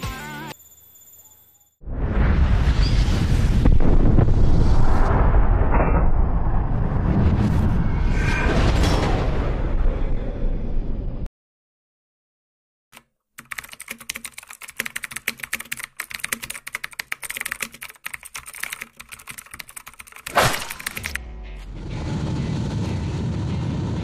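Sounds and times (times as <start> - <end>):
keyboard key clicks: 13.0 - 21.2.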